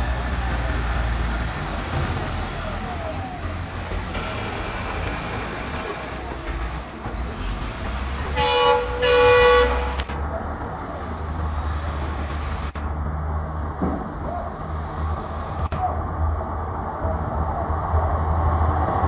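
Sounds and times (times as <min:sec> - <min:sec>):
diesel locomotive engine rumble: 0:00.0 - 0:19.0
locomotive horn blasts: 0:08.2 - 0:10.1.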